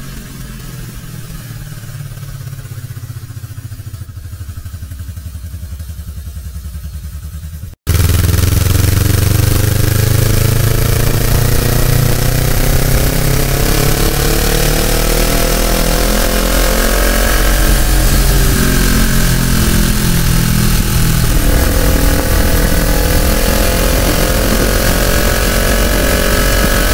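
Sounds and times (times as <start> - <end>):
motorcycle engine revving: 0.0 - 26.9
wind rush on microphone: 17.0 - 26.9.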